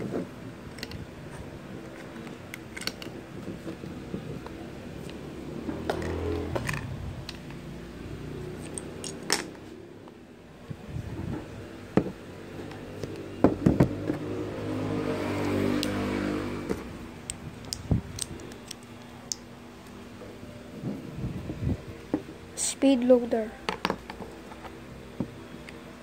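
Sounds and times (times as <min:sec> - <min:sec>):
steady low hum: 0:00.0 - 0:26.0
plastic bricks clicking and knocking: 0:17.3 - 0:19.4.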